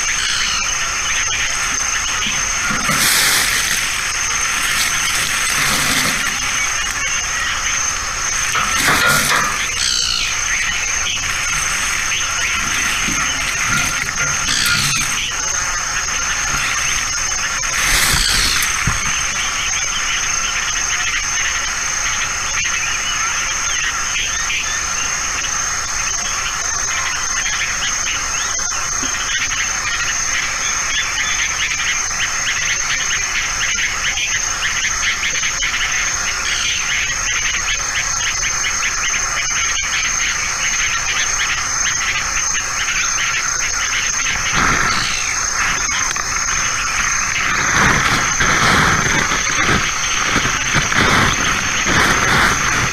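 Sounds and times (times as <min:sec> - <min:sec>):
insects chirping: 0:00.0 - 0:52.9.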